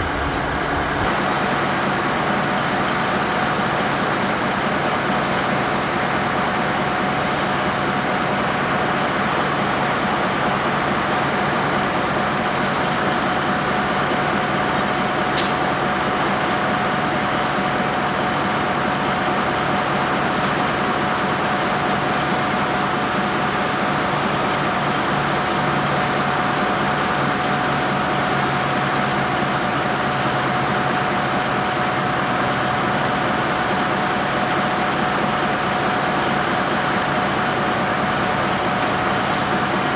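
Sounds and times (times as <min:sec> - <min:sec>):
steady whine: 0:00.0 - 0:04.3
diesel engine drone: 0:00.0 - 0:39.9.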